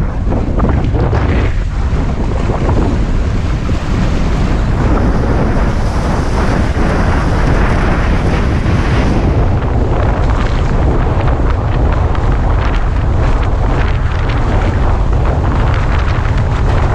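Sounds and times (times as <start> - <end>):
water rushing and splashing: 0.0 - 16.9
wind buffeting microphone: 0.0 - 16.9.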